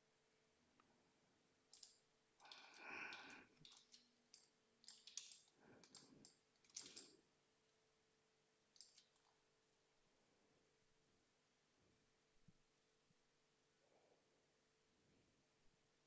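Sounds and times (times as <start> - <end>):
computer mouse clicking: 1.7 - 7.1, 8.8 - 9.3.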